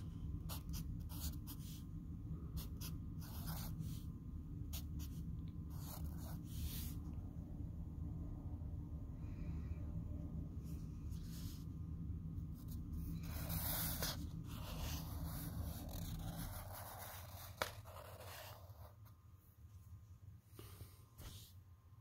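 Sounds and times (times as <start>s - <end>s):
marker scratching on paper: 0.0s - 1.9s, 2.6s - 4.1s, 4.7s - 7.0s, 12.6s - 19.0s
low steady hum: 0.0s - 22.0s.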